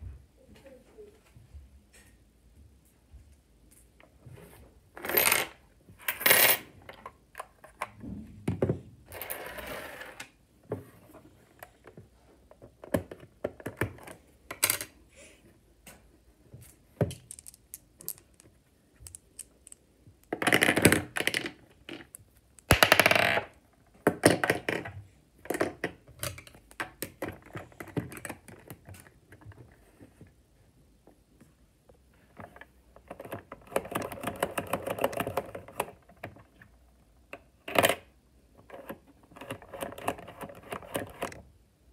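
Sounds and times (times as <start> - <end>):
plastic bricks clicking and clattering: 17.0 - 29.2
small balls rattling: 17.1 - 23.6.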